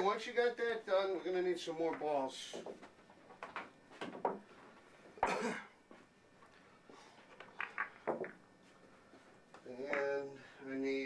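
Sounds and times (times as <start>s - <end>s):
billiard balls clacking: 7.3s - 8.5s, 9.9s - 10.2s.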